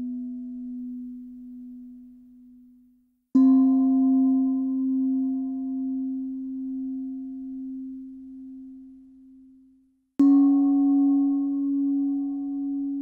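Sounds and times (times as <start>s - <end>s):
singing bowl ringing: 3.4s - 9.6s, 10.2s - 13.0s.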